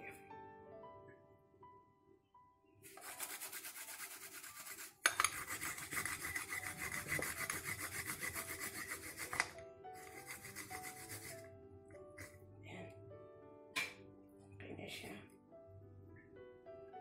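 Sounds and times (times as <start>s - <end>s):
metal hand grater rasping: 2.9s - 11.4s.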